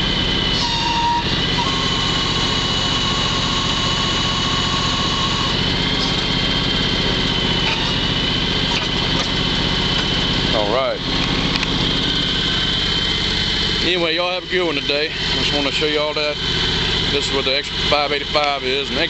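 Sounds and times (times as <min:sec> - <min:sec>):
garden tractor engine running: 0:00.0 - 0:19.0
thin high whine: 0:00.5 - 0:06.2.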